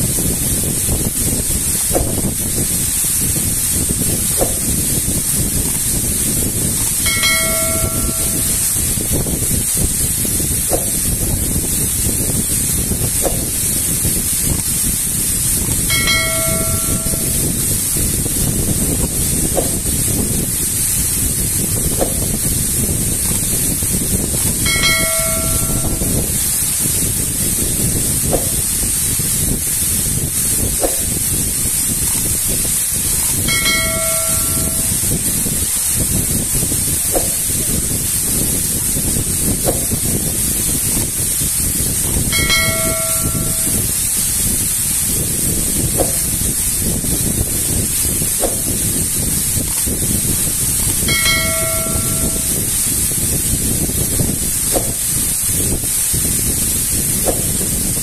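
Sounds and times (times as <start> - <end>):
small waterfall pouring into pool: 0.0 - 58.0
bell-like chime: 7.0 - 8.6, 15.9 - 17.6, 24.6 - 26.2, 33.5 - 35.1, 42.3 - 43.8, 51.1 - 52.7.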